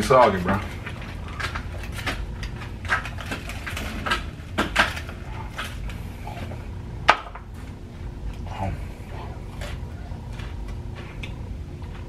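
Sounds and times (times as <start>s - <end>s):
steady low hum: 0.0s - 12.0s
crunchy chewing: 7.5s - 12.0s.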